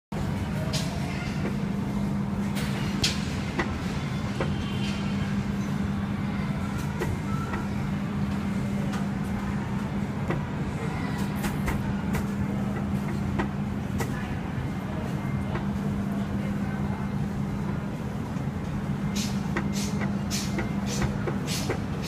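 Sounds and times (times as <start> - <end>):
steady low hum: 0.1 - 22.0.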